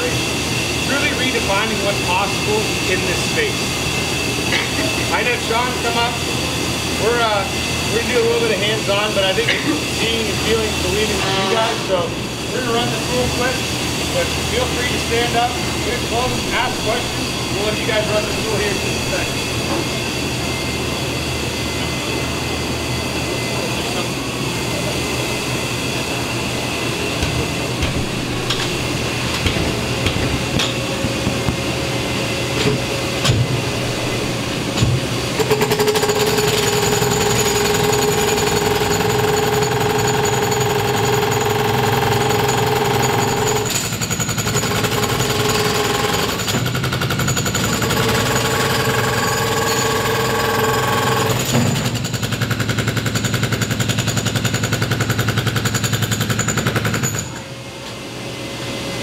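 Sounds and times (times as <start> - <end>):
breaker hammer pounding concrete: 27.2 - 57.3.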